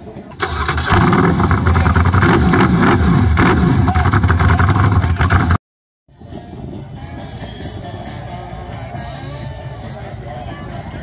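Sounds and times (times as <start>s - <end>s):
motorcycle engine revving: 0.4s - 5.6s.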